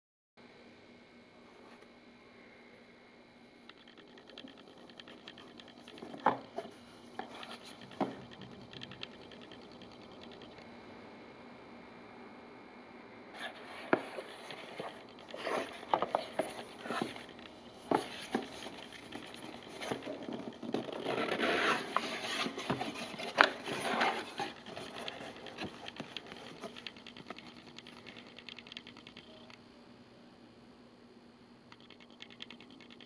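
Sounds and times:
cardboard scraping and rubbing: 13.4s - 17.3s, 19.6s - 25.9s.

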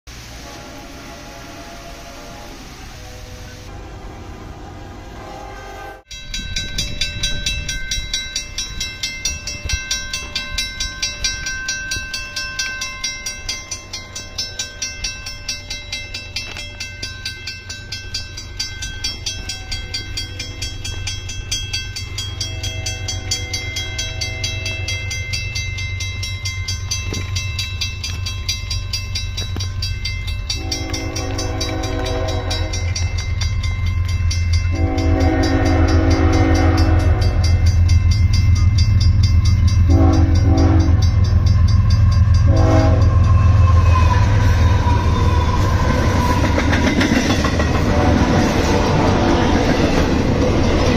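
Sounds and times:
low train rumble: 0.1s - 50.9s
locomotive horn blasts: 0.2s - 6.1s, 22.3s - 25.2s, 30.5s - 33.2s, 34.7s - 37.8s, 39.8s - 41.4s, 42.2s - 46.4s, 47.7s - 49.5s
railroad crossing bell ringing: 5.1s - 50.9s.

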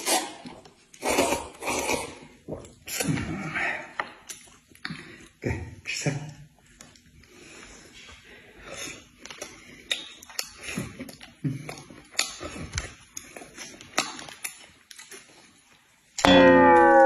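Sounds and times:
slurping noodles: 0.0s - 3.5s
chewing: 4.0s - 5.4s, 6.6s - 16.1s.

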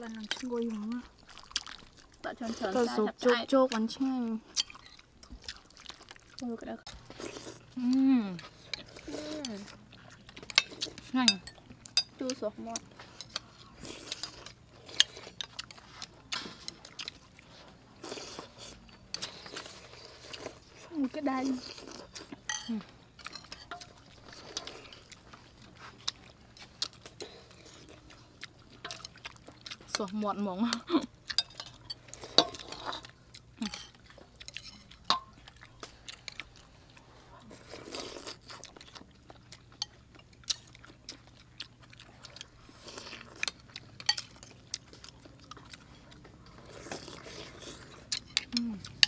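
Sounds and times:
people eating soup and chewing: 0.0s - 49.0s
spoons clicking against bowls: 22.5s - 24.0s, 31.3s - 32.7s, 33.6s - 35.3s.

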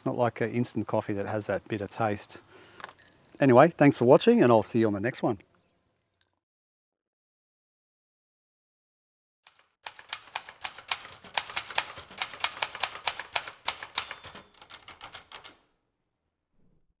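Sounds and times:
typewriter keys striking: 9.5s - 15.6s
typewriter bell ringing: 10.9s - 15.6s.

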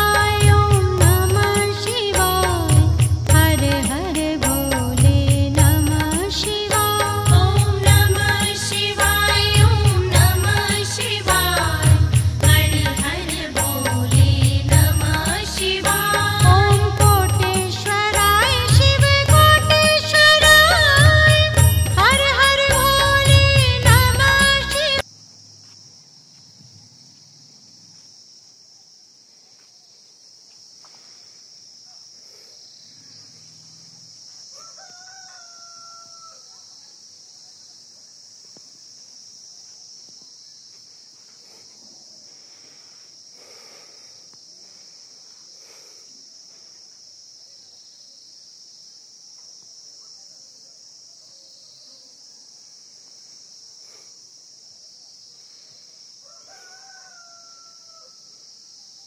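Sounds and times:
steady high-pitched hiss: 0.0s - 59.0s
rooster crowing: 34.5s - 36.8s, 56.2s - 58.5s.

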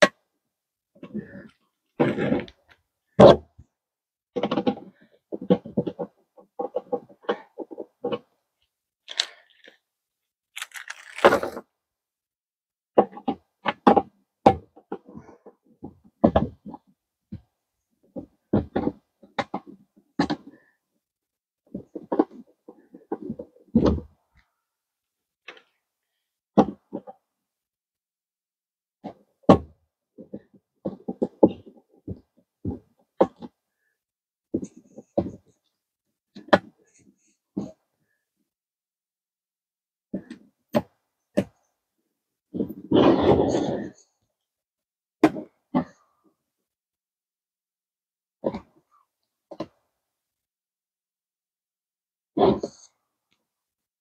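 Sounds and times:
plastic parts clicking and knocking: 4.3s - 8.4s, 9.1s - 9.8s, 10.5s - 11.7s, 13.0s - 15.1s, 29.0s - 33.6s, 36.3s - 37.9s, 40.1s - 41.7s, 49.5s - 49.9s
rustling: 10.6s - 11.6s.

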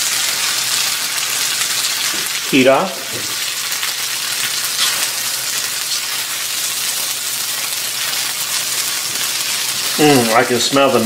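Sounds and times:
food sizzling in a skillet: 0.0s - 11.0s
spatula tossing food: 4.5s - 10.4s.

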